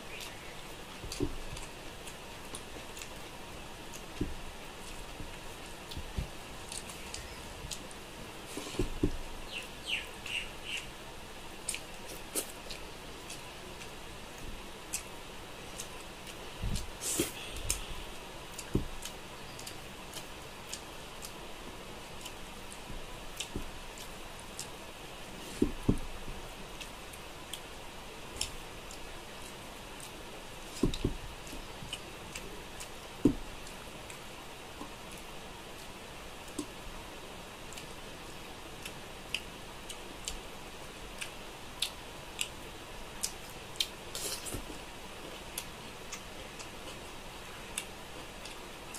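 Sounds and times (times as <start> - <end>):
chewing sounds: 11.6 - 21.4, 22.1 - 26.0, 41.2 - 42.6, 43.2 - 48.9.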